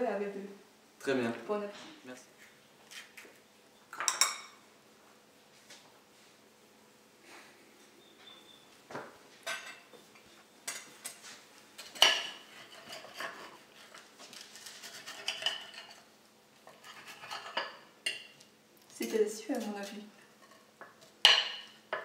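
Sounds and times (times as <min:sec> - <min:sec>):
knife and fork scraping a plate: 0:02.9 - 0:03.2, 0:10.7 - 0:18.4.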